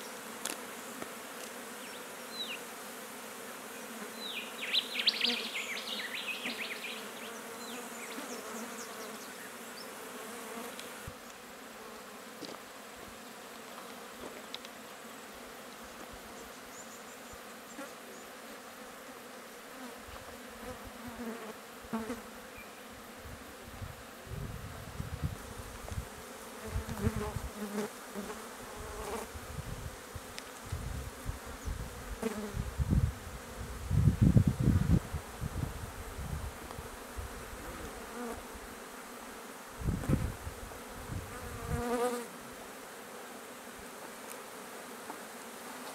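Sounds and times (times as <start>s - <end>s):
flies buzzing: 0.0s - 45.9s.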